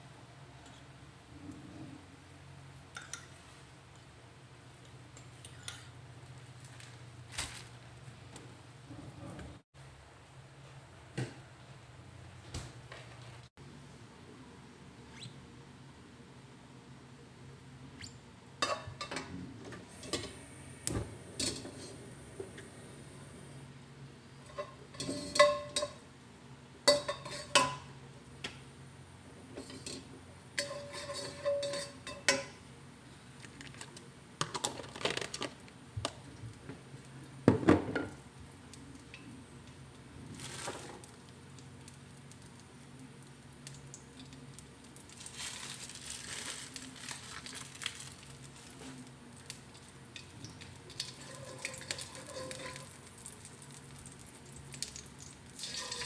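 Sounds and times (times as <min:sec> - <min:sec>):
steady low hum: 0:00.0 - 0:34.4
spatula scraping and knocking wok: 0:24.4 - 0:26.0, 0:26.9 - 0:27.9, 0:29.5 - 0:32.6, 0:50.9 - 0:53.0, 0:55.6 - 0:56.0.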